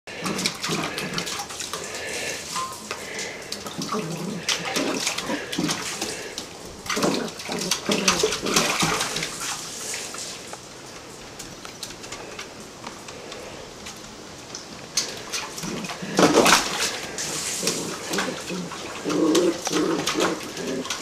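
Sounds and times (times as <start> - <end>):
water splashing in metal bowl: 0.1 - 10.6, 14.9 - 21.0.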